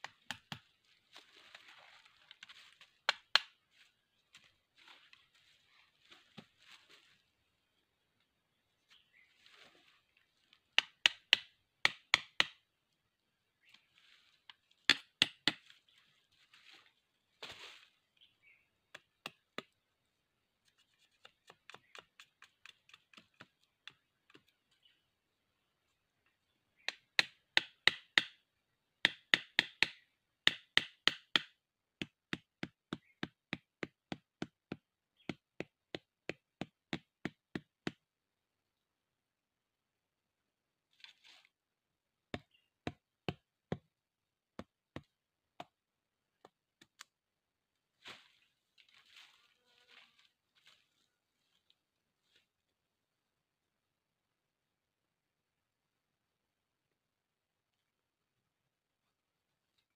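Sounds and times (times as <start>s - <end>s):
knife chopping bamboo: 10.8s - 12.6s, 14.9s - 15.6s, 26.9s - 28.4s, 29.0s - 38.0s, 42.4s - 43.9s, 44.6s - 45.8s.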